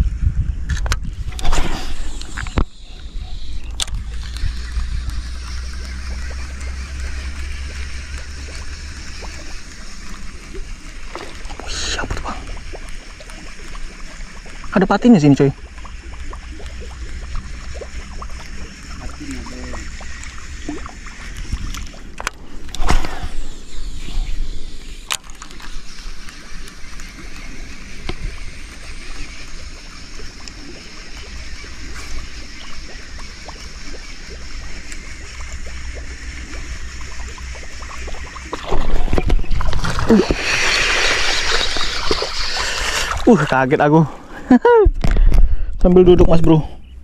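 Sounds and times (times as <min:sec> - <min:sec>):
water splashing and sloshing: 0:01.1 - 0:45.4
sharp clicks: 0:03.6 - 0:08.6.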